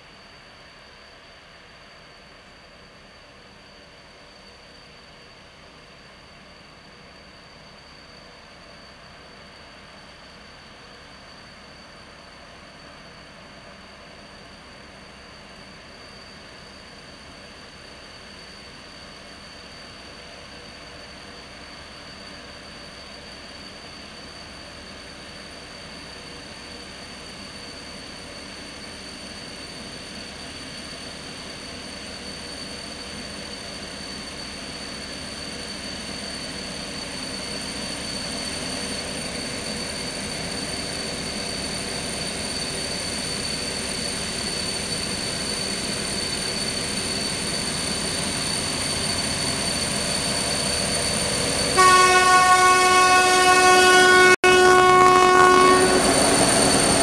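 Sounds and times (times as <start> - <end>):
freight train approaching: 0.0 - 57.0
locomotive horn blast: 51.8 - 56.9.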